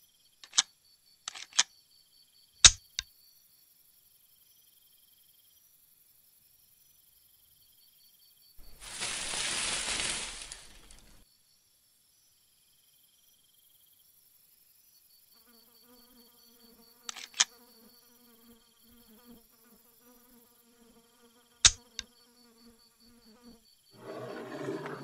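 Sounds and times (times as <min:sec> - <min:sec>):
sharp clicks: 0:00.4 - 0:00.7, 0:01.3 - 0:01.7, 0:17.1 - 0:17.5
fly buzzing: 0:08.6 - 0:11.2.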